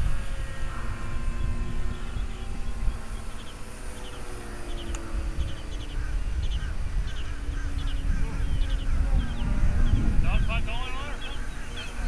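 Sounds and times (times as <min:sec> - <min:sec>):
birds chirping: 0:00.0 - 0:12.0
model jet drone overhead: 0:00.0 - 0:12.0
wind on microphone: 0:00.0 - 0:12.0.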